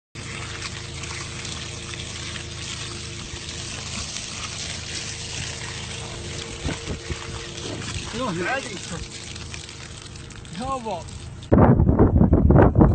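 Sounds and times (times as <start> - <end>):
water pouring into a hole: 0.2 - 11.6.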